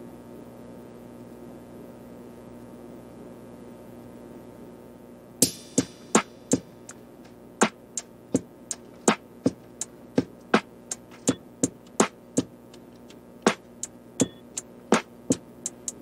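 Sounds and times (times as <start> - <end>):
sharp percussive hits: 5.4 - 7.0, 7.6 - 15.4
faint sustained backing music: 5.4 - 16.0.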